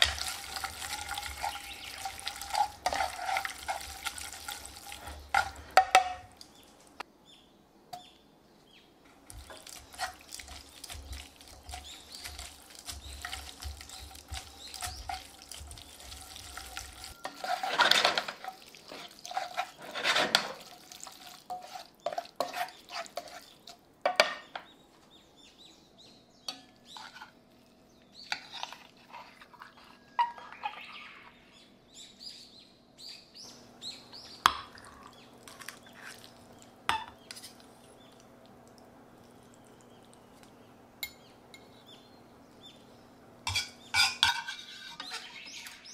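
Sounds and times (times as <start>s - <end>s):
tongs tossing pasta in a pan: 0.0s - 5.8s, 9.2s - 23.8s
metal utensils clinking: 0.0s - 6.3s, 9.4s - 20.9s, 43.5s - 45.9s.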